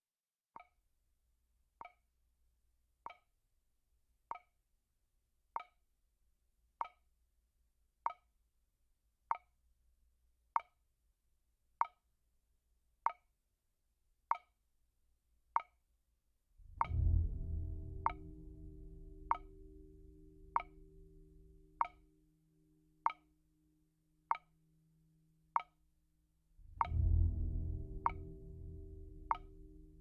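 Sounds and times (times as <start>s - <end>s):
clock-like ticking: 6.8s - 7.0s, 16.6s - 22.1s, 23.0s - 23.3s, 24.3s - 24.5s, 25.5s - 25.8s, 26.6s - 30.0s
low sustained notes: 16.6s - 22.8s, 26.5s - 30.0s.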